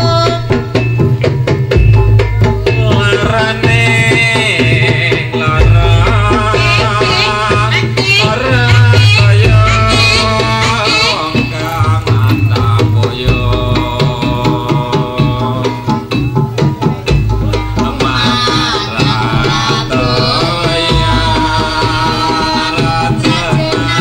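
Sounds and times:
hand drums beating: 0:00.0 - 0:24.0
held melodic tones: 0:09.2 - 0:24.0
wavering high melody: 0:11.1 - 0:24.0.

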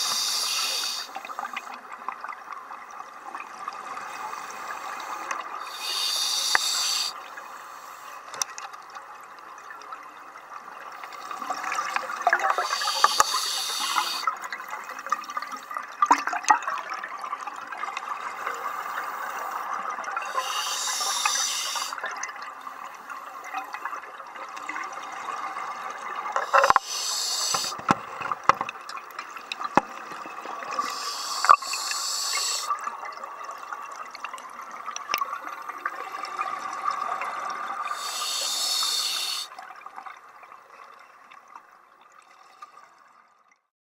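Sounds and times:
regulator hissing burst: 0:00.0 - 0:01.1, 0:05.7 - 0:07.1, 0:12.5 - 0:14.3, 0:20.3 - 0:22.0, 0:26.5 - 0:27.8, 0:30.8 - 0:32.7, 0:37.9 - 0:39.5.

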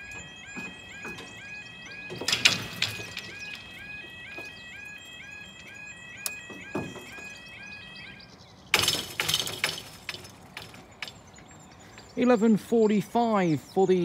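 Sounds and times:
barriers rattling clatter: 0:00.0 - 0:04.9, 0:08.7 - 0:12.2
level crossing alarm chirps: 0:00.0 - 0:14.0.

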